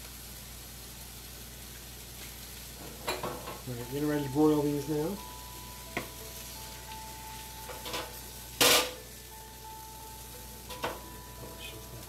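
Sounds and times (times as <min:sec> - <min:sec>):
meat sizzling in frying pan: 0:00.0 - 0:12.0
cookware clank: 0:03.0 - 0:03.6, 0:07.7 - 0:09.0.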